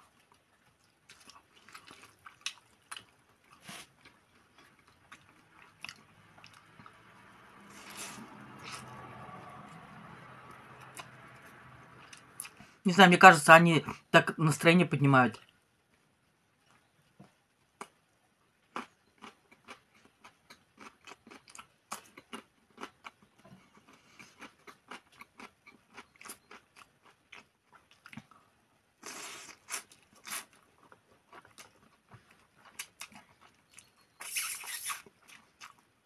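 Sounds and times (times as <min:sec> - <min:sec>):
person chewing: 0:00.1 - 0:07.0, 0:07.7 - 0:09.0, 0:18.7 - 0:28.4, 0:29.0 - 0:35.8
noodles slurped: 0:34.2 - 0:35.1.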